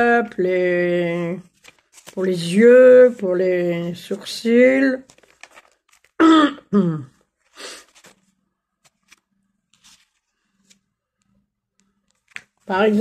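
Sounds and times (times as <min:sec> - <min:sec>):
woman clearing throat: 0:06.2 - 0:07.2.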